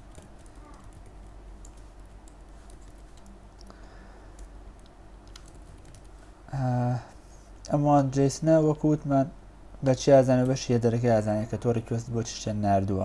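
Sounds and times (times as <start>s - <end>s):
faint keyboard keystroke clicks: 4.3s - 6.1s.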